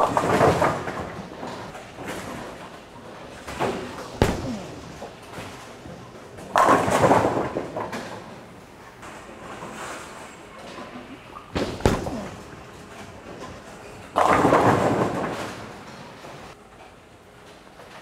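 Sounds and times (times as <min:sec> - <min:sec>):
bowling pins crashing: 0:00.0 - 0:02.6, 0:03.3 - 0:08.3, 0:11.6 - 0:16.2
bowling ball thud: 0:03.5 - 0:05.7, 0:11.6 - 0:13.2.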